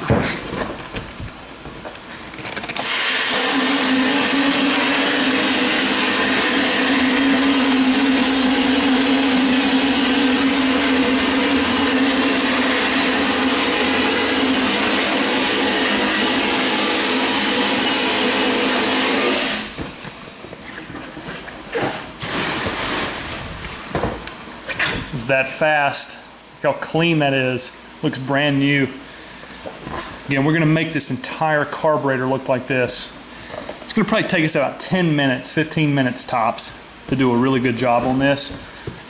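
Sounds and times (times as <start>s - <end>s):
blasting gun hissing: 2.8s - 19.8s.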